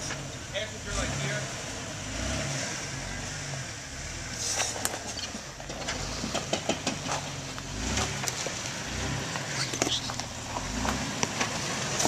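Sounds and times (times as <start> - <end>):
engine running at low revs: 0.0 - 12.0
tyres crunching on stone: 4.6 - 12.0.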